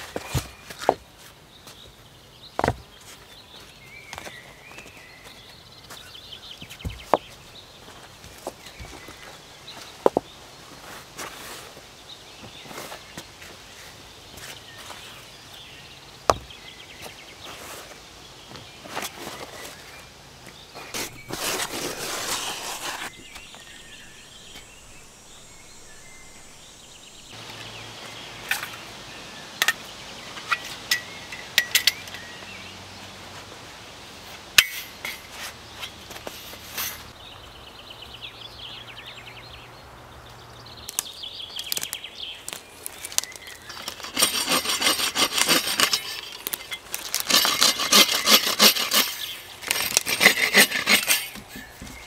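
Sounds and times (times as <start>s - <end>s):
stones knocking together: 2.6s - 2.9s, 10.0s - 10.3s, 16.3s - 16.6s
saw cutting branch: 20.8s - 25.1s, 43.2s - 52.0s.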